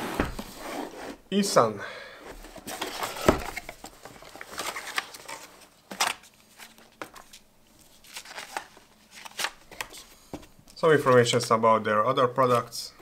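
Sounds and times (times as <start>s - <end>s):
cardboard and paper rustling: 2.3s - 11.5s.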